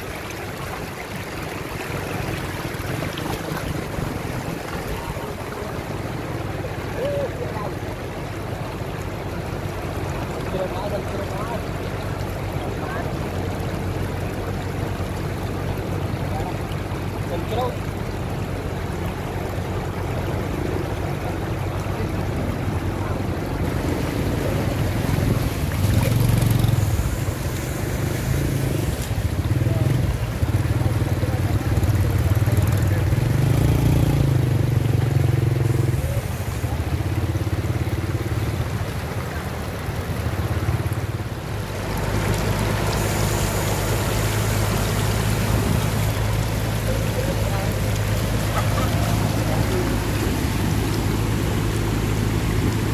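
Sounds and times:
floodwater rushing: 0.0s - 52.9s
small motorbike engine: 23.8s - 38.4s.

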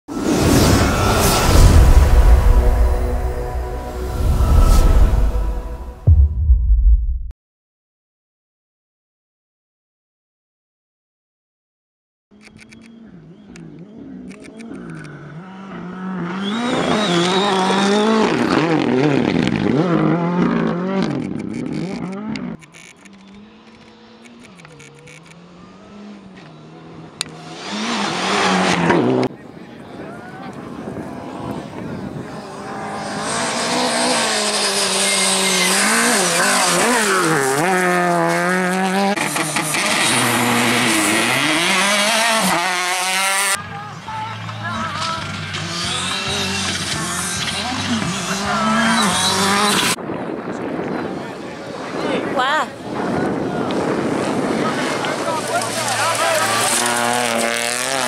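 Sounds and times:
car engine at full throttle: 12.6s - 29.3s, 30.5s - 43.6s, 44.4s - 50.0s, 53.0s - 58.0s.

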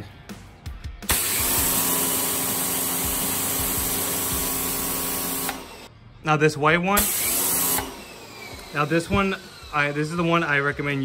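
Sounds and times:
pressure washer spray hissing: 1.1s - 5.6s, 7.0s - 7.8s
pump motor humming: 1.1s - 5.9s.

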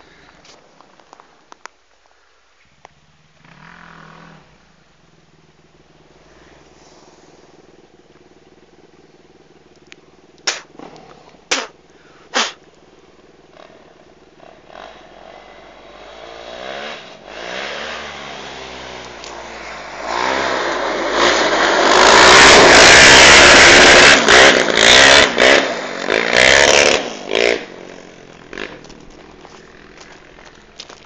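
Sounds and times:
quad engine revving: 10.4s - 11.8s, 12.4s - 12.7s, 13.5s - 30.6s
tyres sliding on gravel: 25.8s - 31.0s.

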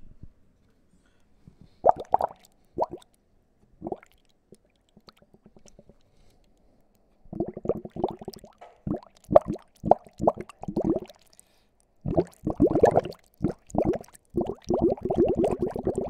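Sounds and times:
air bubbling in water: 1.8s - 3.0s, 3.8s - 4.2s, 7.3s - 11.4s, 12.0s - 16.0s.

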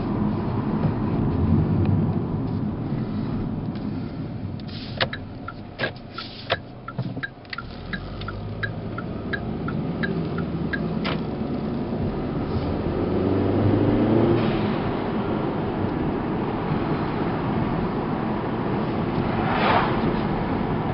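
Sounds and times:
car engine and road noise: 0.0s - 20.9s
turn signal ticking: 3.6s - 12.5s.

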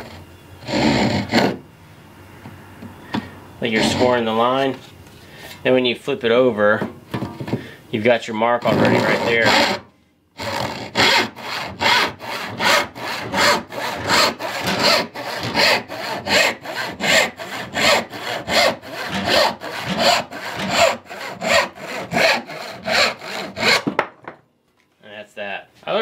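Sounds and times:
hand saw cutting wood: 0.0s - 1.6s, 8.6s - 9.8s, 10.4s - 24.0s.

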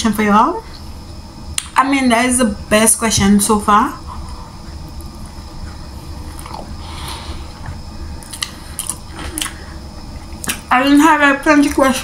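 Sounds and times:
biting and chewing sandwich: 4.8s - 9.6s
wet mouth clicks: 8.2s - 9.6s.

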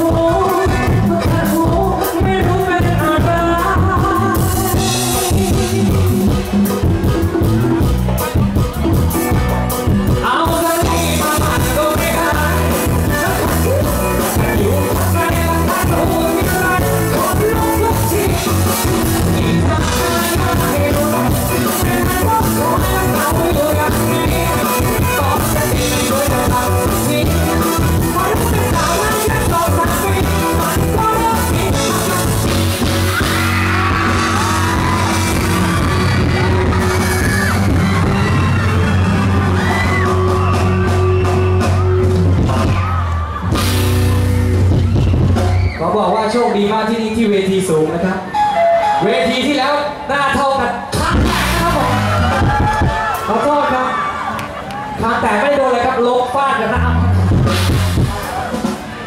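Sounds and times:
person singing: 0.0s - 8.4s, 9.7s - 41.2s, 48.5s - 52.7s
live band playing: 0.0s - 59.0s.

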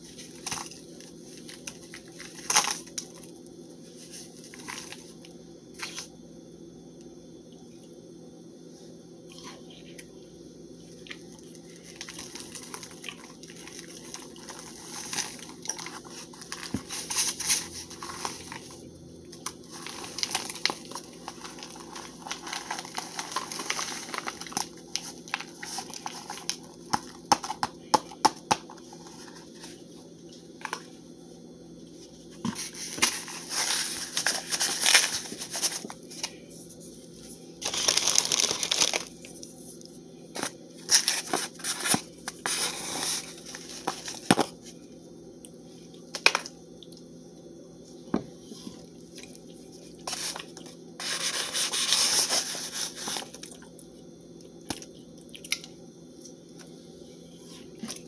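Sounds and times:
paper box rustling and crunching: 0.0s - 3.3s, 3.9s - 5.2s, 11.7s - 18.8s, 19.4s - 29.8s, 32.3s - 36.3s, 37.6s - 39.2s, 40.3s - 44.6s, 50.0s - 53.6s
steady low hum: 0.0s - 58.0s.

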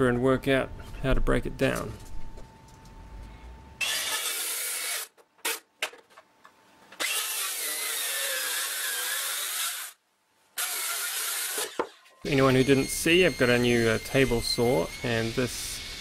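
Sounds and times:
circular saw cutting wood: 3.8s - 5.6s, 7.0s - 10.0s, 10.6s - 16.0s.

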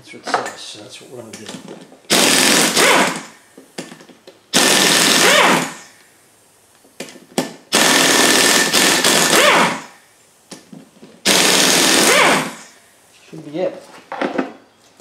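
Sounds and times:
pneumatic impact wrench hammering: 2.1s - 6.0s, 7.1s - 10.0s, 11.2s - 12.8s.

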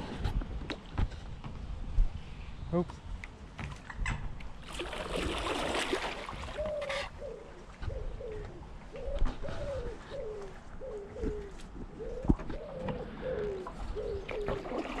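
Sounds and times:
water splashing off a paddle: 4.6s - 7.0s, 14.3s - 15.0s
pigeon cooing: 6.5s - 15.0s.

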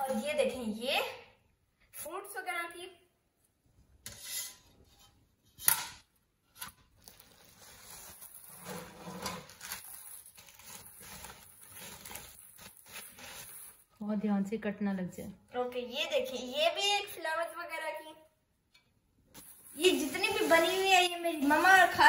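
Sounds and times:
bubble wrap rustling and crackling: 6.7s - 14.1s, 19.3s - 22.0s.

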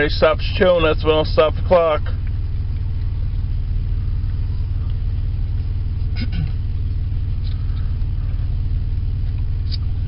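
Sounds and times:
car engine idling: 0.0s - 10.0s.

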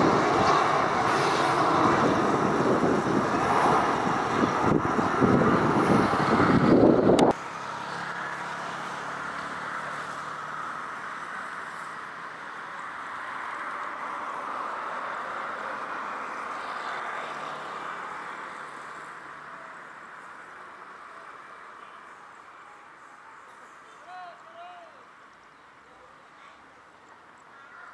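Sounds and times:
loud rushing sound: 0.0s - 7.9s
jet engines whining: 0.0s - 12.4s.

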